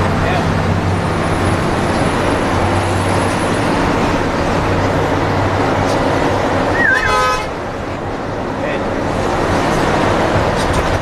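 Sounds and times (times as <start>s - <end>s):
bus engine and road noise: 0.0s - 11.0s
wavering horn: 6.7s - 7.6s.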